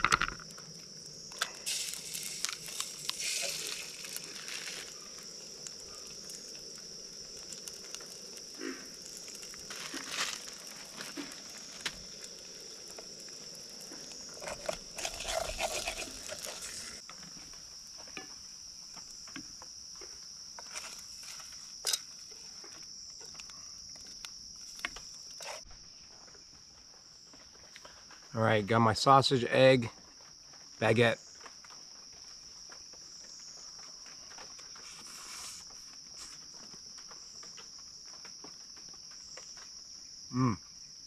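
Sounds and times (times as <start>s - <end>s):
high insect buzz: 0.0s - 26.0s, 34.4s - 37.5s
chopsticks scraping a steel pot: 14.3s - 17.0s, 25.4s - 25.6s.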